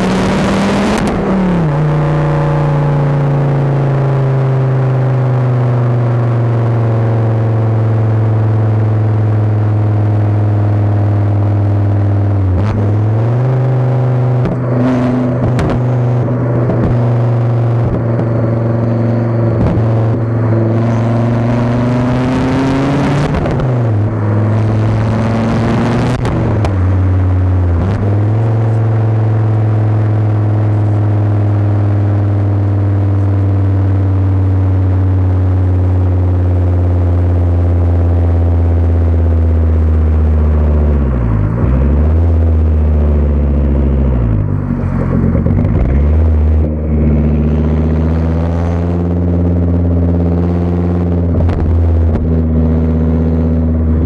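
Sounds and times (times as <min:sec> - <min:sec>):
car exhaust deep drone: 0:00.0 - 0:54.0.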